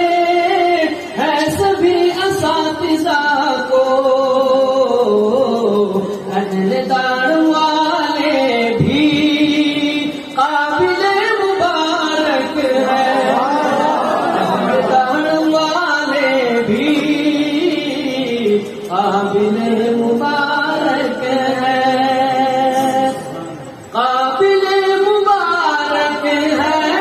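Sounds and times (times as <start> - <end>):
man singing through loudspeakers: 0.0 - 27.0.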